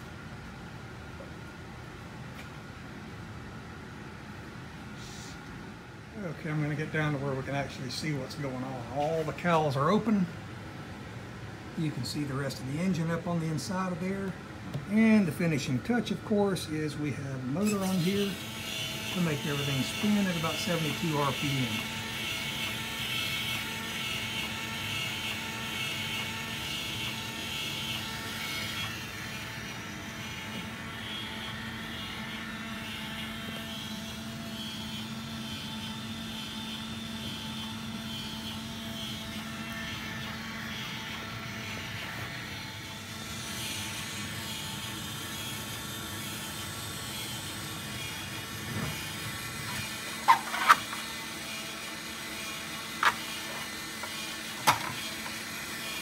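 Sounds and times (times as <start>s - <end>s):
small electric motor whirring: 17.6s - 56.0s.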